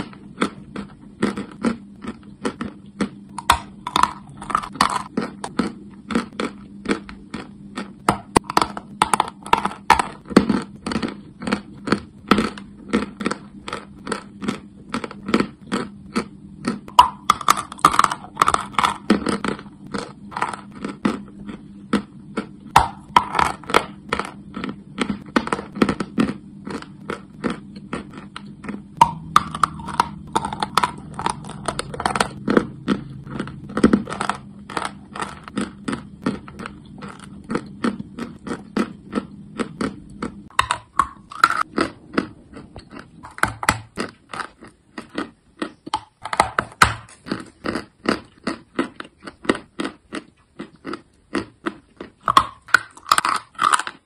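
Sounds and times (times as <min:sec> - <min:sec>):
faint steady hum: 0:00.0 - 0:54.0.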